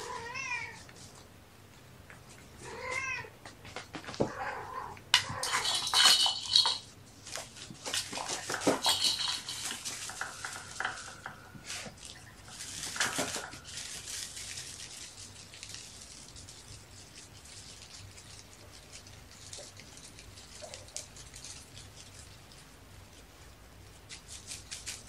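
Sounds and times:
small hard objects rattling: 5.1 - 22.3.

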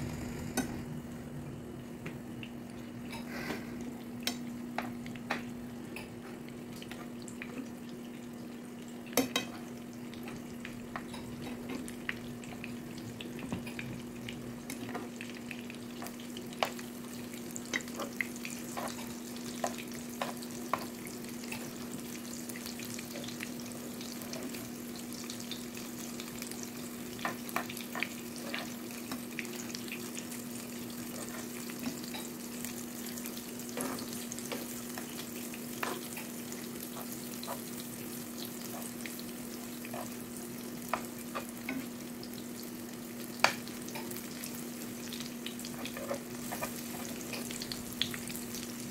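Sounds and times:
steady low hum: 0.0 - 4.6
oil sizzling in a frying pan: 0.2 - 48.9.

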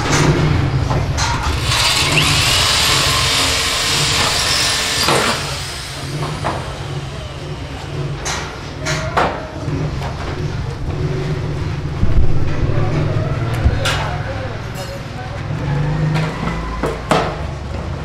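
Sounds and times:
electric drill boring into metal: 1.4 - 8.2.

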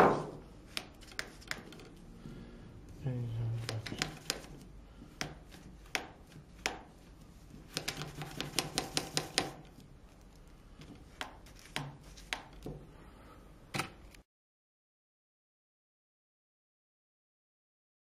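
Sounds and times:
hands tapping magnets on table: 7.7 - 9.6.

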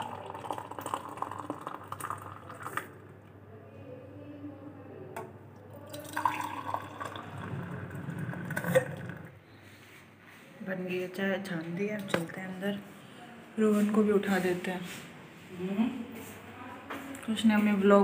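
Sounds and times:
tea pouring and splashing: 0.0 - 3.0, 5.9 - 9.3.

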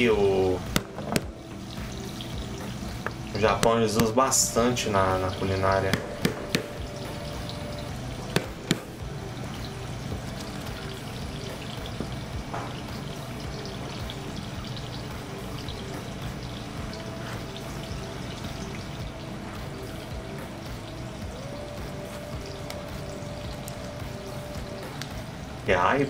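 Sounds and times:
commercial kitchen background noise: 0.0 - 26.0
sharp knocks: 0.7 - 1.4, 5.9 - 6.8, 8.3 - 9.0.

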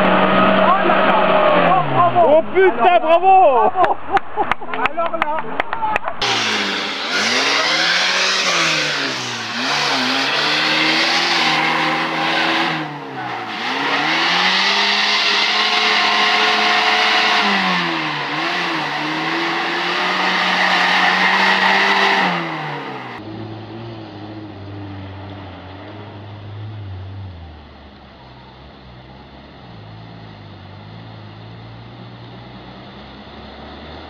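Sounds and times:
off-road vehicle engine revving: 0.0 - 2.6, 6.2 - 28.0.

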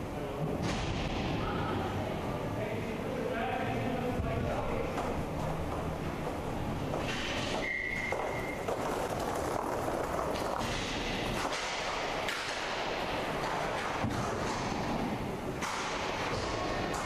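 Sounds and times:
skate wheels rolling on rink: 4.2 - 17.0
hockey sticks and puck clacking: 4.9 - 17.0.

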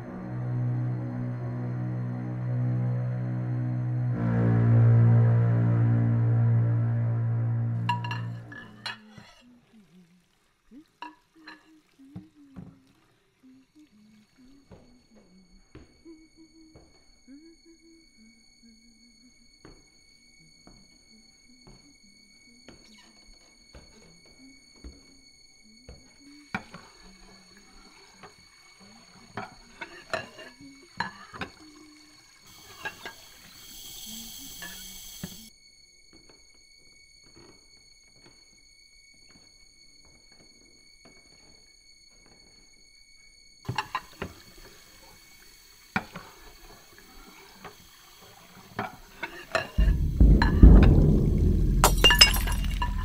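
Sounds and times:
steady hiss: 26.5 - 52.2
glassware and dishes clinking: 49.8 - 53.0
loud low rumbling: 49.8 - 53.0
glass objects clicking: 51.8 - 53.0.

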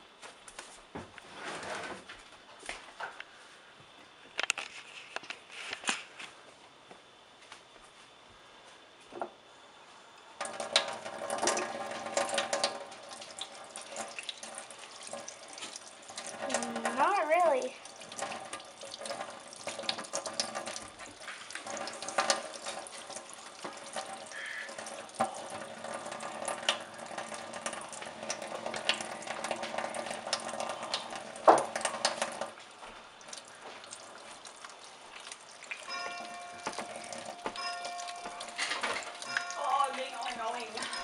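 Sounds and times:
tap running into steel sink: 24.8 - 32.5.

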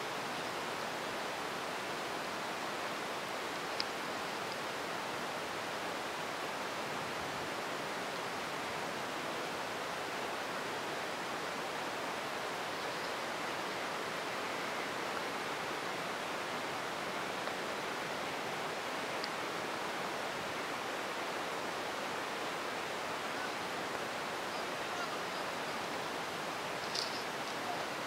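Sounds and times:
light ticks of raindrops: 3.3 - 4.8, 17.3 - 17.9, 19.0 - 19.5, 26.7 - 27.7.

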